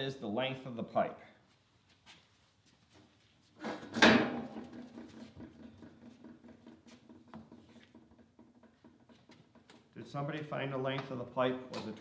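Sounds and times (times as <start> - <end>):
tools clicking and knocking: 3.9 - 10.0.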